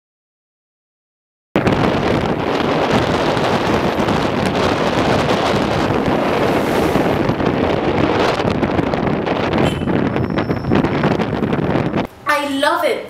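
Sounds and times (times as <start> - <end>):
car road noise: 1.6 - 12.1
wind on microphone: 1.6 - 12.3.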